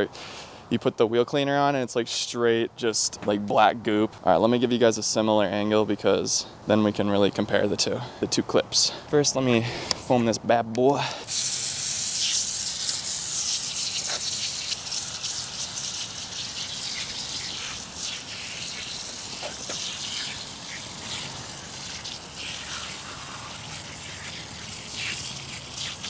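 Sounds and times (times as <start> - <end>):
foam sprayer hissing: 11.2 - 26.0.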